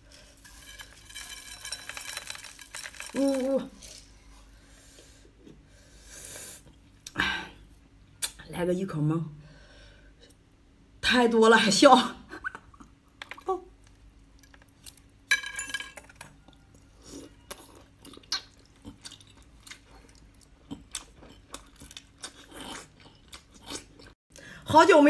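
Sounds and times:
person chewing: 16.4s - 24.2s.

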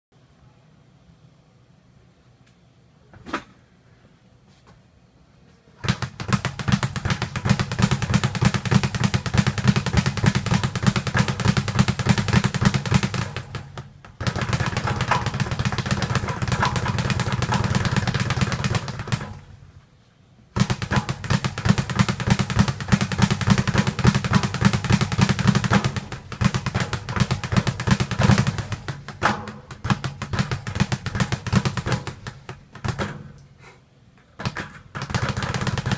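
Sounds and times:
speed bag rattling: 5.8s - 19.6s, 20.6s - 33.1s, 34.4s - 35.9s.

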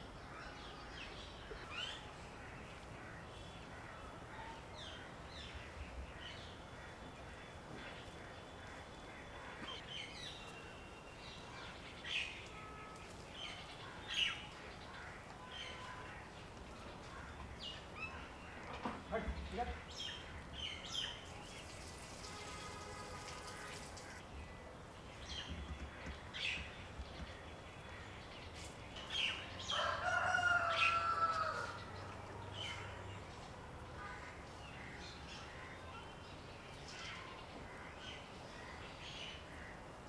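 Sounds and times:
rooster crowing: 29.7s - 31.8s.

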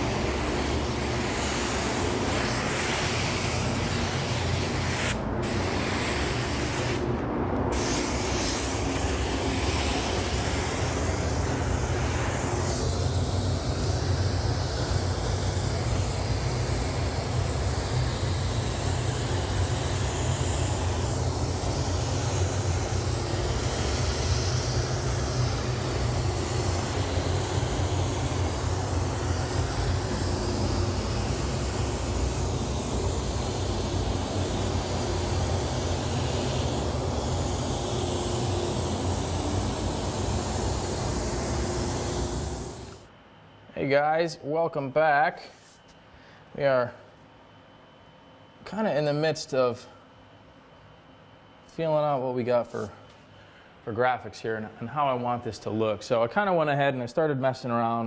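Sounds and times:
spray gun hissing: 0.0s - 7.1s, 7.7s - 43.1s
steady low rumble: 0.0s - 43.0s.

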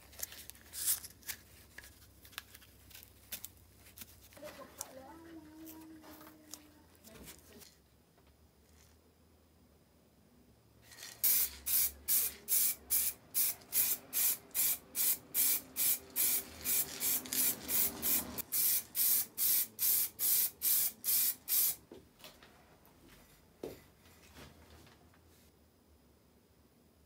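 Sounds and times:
spray paint hissing bursts: 10.9s - 21.8s.

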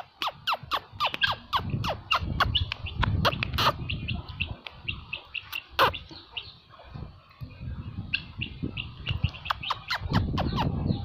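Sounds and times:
guineafowl calling: 0.2s - 6.6s.

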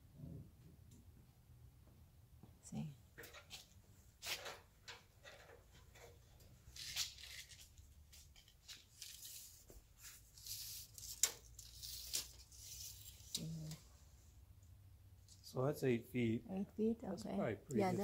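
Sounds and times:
tape measure scraping and rustling: 3.4s - 4.6s, 5.2s - 13.9s.

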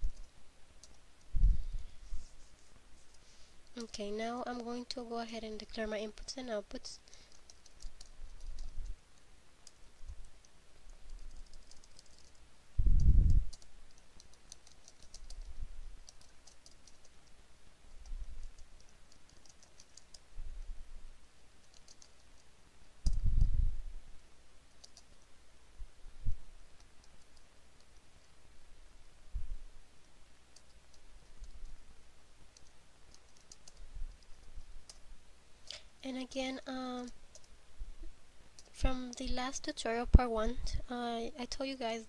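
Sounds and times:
keyboard typing: 0.0s - 1.0s, 7.1s - 9.0s, 9.6s - 12.4s, 13.4s - 17.4s, 18.0s - 20.3s, 21.6s - 23.2s, 24.7s - 25.2s, 30.5s - 31.6s, 32.5s - 35.0s, 36.8s - 37.5s.

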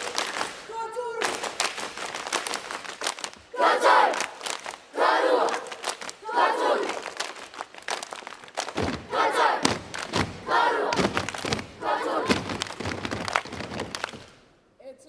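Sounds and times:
children chanting in unison: 3.5s - 7.0s, 9.0s - 12.6s
body slaps and floor thumps: 8.6s - 14.3s.

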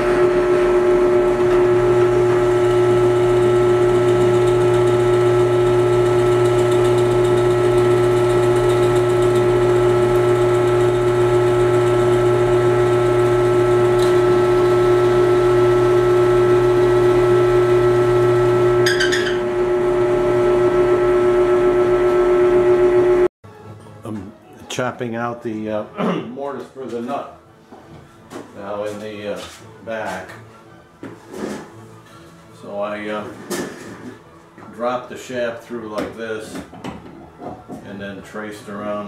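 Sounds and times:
drill press motor whine: 0.0s - 23.3s.

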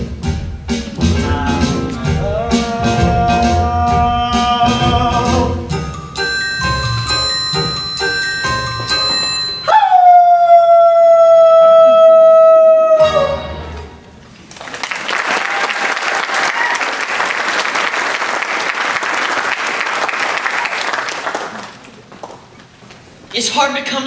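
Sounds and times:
audience applauding: 14.4s - 22.5s.

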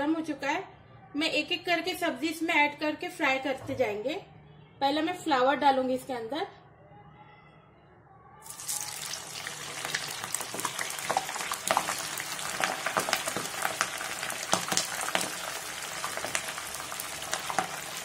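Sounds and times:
bubbling oil crackling and popping: 8.4s - 18.0s
vegetables deep-frying in oil: 8.4s - 18.0s.

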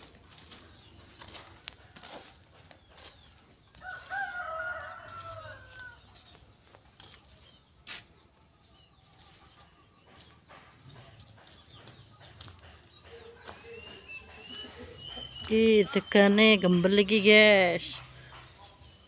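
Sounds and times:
rooster crowing: 3.8s - 6.0s.

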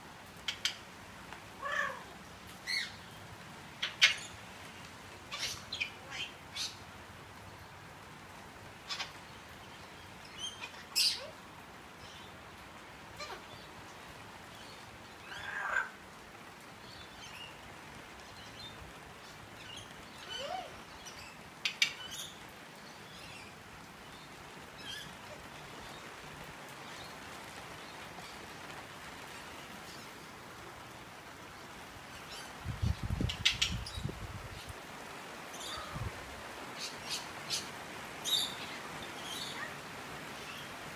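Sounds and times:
rain hissing: 0.0s - 40.9s
parrot calling and chirping: 1.6s - 3.0s, 3.8s - 4.4s, 5.3s - 6.8s, 15.2s - 16.0s, 36.8s - 39.8s.

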